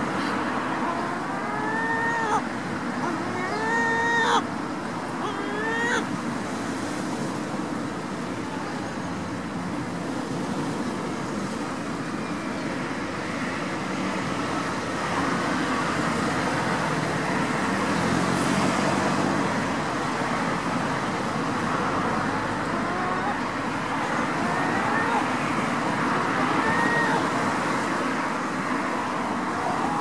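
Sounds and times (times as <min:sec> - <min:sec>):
outdoor traffic noise: 0:00.0 - 0:30.0
engine hum passing: 0:14.3 - 0:19.9.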